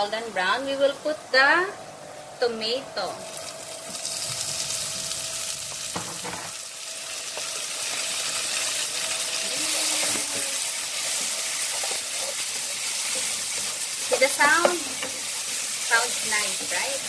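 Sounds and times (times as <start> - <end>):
tomatoes sizzling in oil: 3.1 - 17.0
spatula knocking pan: 11.1 - 15.3.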